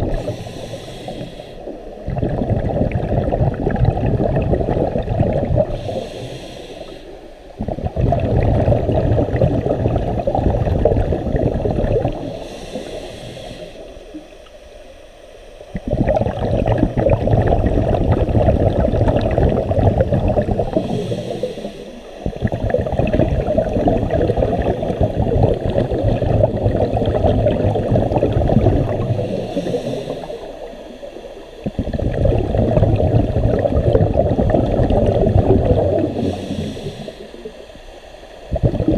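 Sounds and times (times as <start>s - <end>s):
regulator bubbles gurgling underwater: 0.0s - 38.9s.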